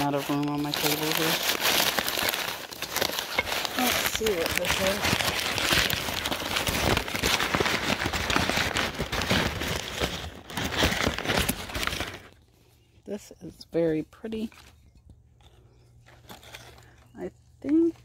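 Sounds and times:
packing wrap crinkling: 0:00.0 - 0:12.5, 0:15.4 - 0:17.1.

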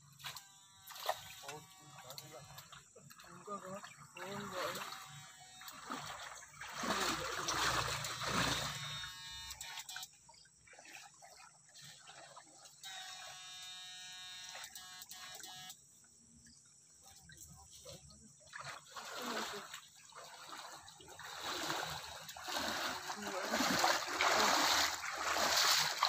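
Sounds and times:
steady electric buzz: 0:00.1 - 0:02.8, 0:08.1 - 0:09.9, 0:12.8 - 0:15.8
water splashing and swirling: 0:00.1 - 0:13.5, 0:17.1 - 0:26.0.

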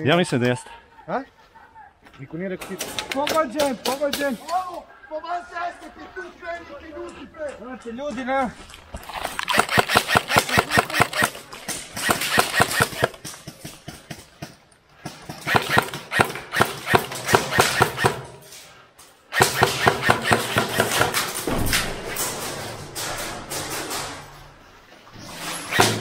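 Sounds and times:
airsoft rifles firing full-auto bursts: 0:09.4 - 0:11.4, 0:12.0 - 0:13.2, 0:15.3 - 0:18.3, 0:19.3 - 0:21.2.

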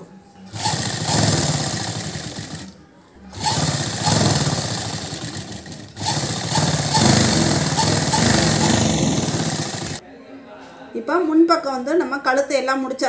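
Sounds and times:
sewing machine running fast: 0:00.5 - 0:02.7, 0:03.3 - 0:10.0.

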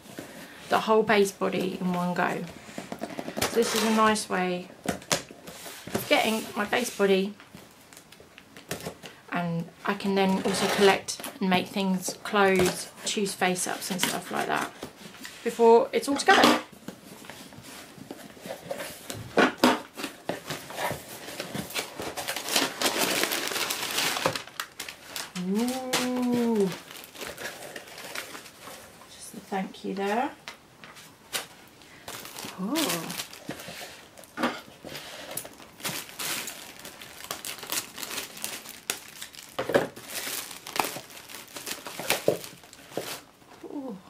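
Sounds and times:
cardboard scraping and rustling: 0:17.0 - 0:24.4
plastic packaging crinkling: 0:19.8 - 0:29.0, 0:31.3 - 0:43.4.

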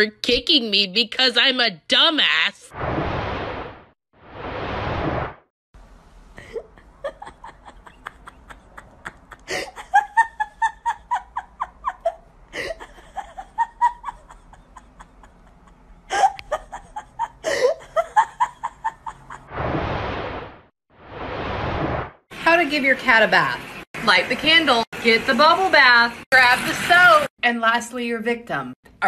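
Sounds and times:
person laughing hard: 0:06.4 - 0:19.4.

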